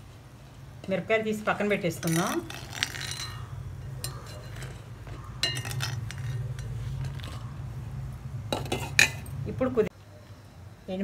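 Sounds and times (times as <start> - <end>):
metal ladle clinking on pan: 5.4 - 7.2, 8.6 - 9.3.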